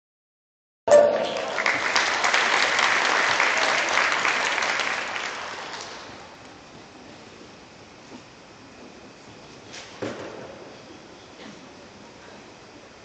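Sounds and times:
applause: 0:01.1 - 0:06.4.

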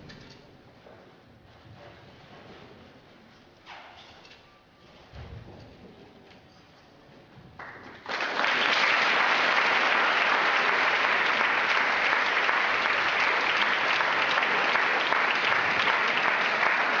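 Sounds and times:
audience applauding: 0:07.6 - 0:17.0.

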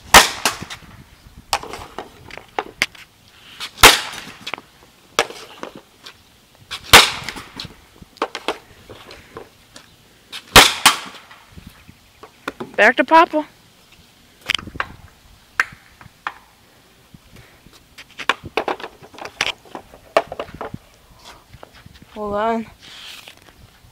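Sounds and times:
hockey stick cracking pucks: 0:03.8 - 0:04.6, 0:05.2 - 0:05.8, 0:18.2 - 0:20.7.

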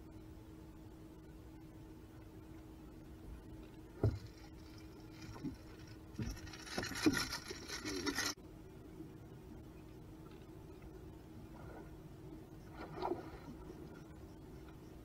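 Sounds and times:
steady low hum: 0:00.0 - 0:15.0
rustling and scraping: 0:03.6 - 0:08.4
knocks and scraping on deck: 0:04.0 - 0:08.4.

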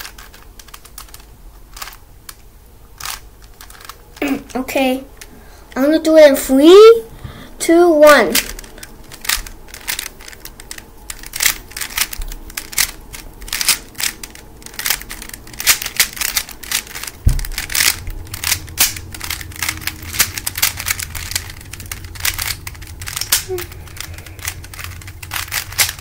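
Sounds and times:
puzzle cube clicking: 0:00.0 - 0:04.6, 0:08.3 - 0:26.0
low bump: 0:15.9 - 0:26.0.

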